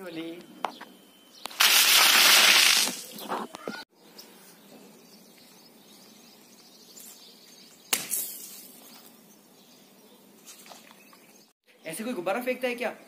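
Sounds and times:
water splashing down: 1.5s - 3.1s
water balloon bursting on concrete: 1.5s - 3.3s, 7.9s - 8.8s.

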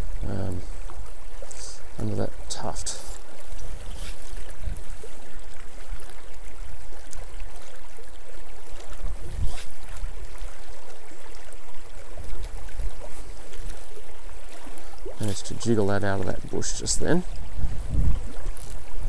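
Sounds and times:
river rushing and rippling: 0.0s - 19.0s
wind buffeting microphone: 9.0s - 10.1s, 15.0s - 19.0s.

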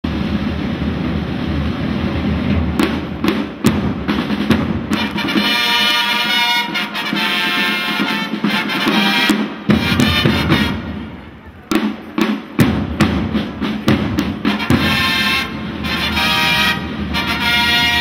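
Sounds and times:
drums rolling: 0.0s - 18.0s
trumpets holding chord: 4.9s - 11.1s, 14.4s - 18.0s.

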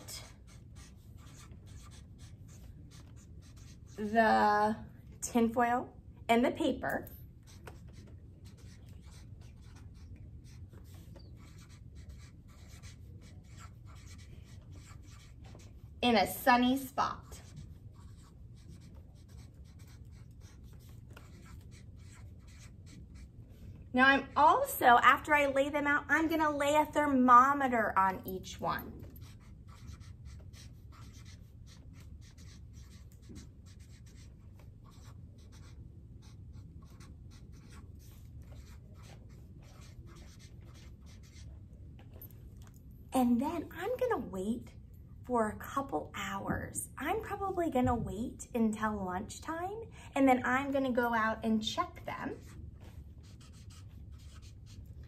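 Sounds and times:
marker writing on paper: 0.0s - 4.2s, 7.4s - 15.9s, 17.0s - 23.6s, 28.6s - 42.3s, 52.3s - 55.0s.

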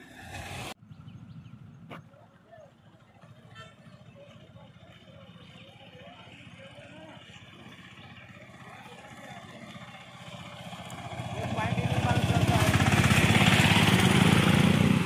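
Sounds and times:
vehicle engines rumbling: 0.0s - 15.0s
faint voices: 2.0s - 10.5s.

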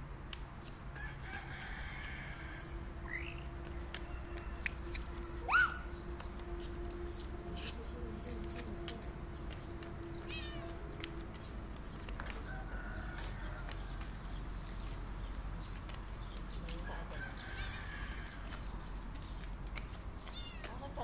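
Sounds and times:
faint animal calls: 5.4s - 5.9s.

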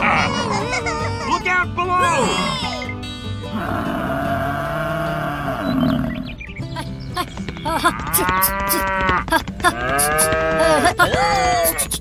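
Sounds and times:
cattle mooing: 3.5s - 6.3s, 7.5s - 10.8s.

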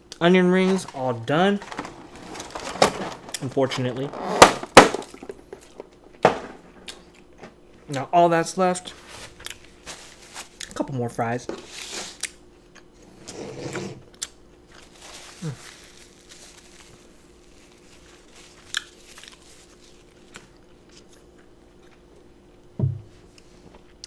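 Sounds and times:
person chewing: 18.6s - 22.0s.

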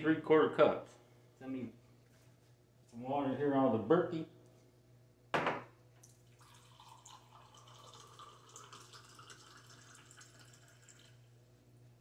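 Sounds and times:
water trickling into glass: 6.0s - 11.3s.

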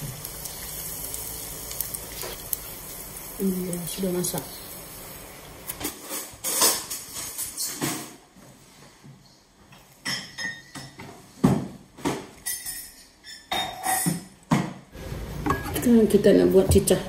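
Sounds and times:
kitchen clinks and knocks: 10.0s - 14.8s, 15.4s - 15.9s.

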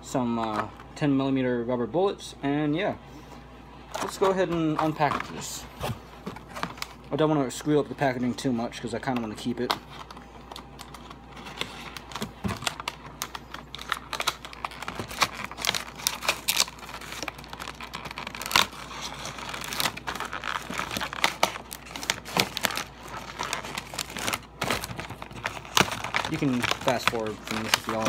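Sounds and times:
packaging crinkling and tearing: 3.9s - 28.0s
packaging snap: 19.4s - 28.0s.

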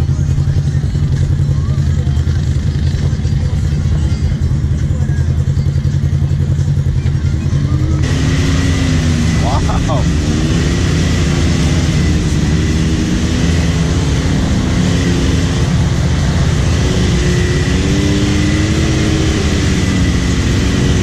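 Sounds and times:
engine running under load: 0.0s - 21.0s.

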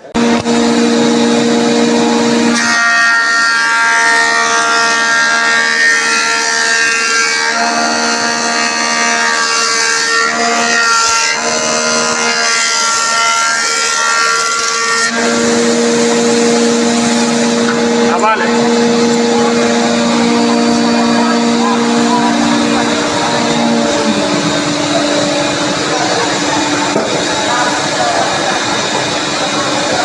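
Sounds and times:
board planing whine: 0.0s - 30.0s
jointer humming: 0.0s - 30.0s.

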